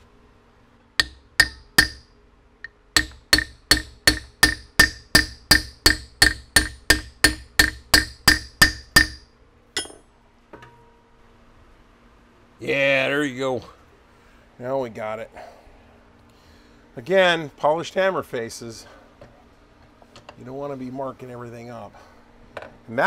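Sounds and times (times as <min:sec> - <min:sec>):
hammer blows ringing on metal: 0:01.0 - 0:02.1, 0:03.0 - 0:10.0.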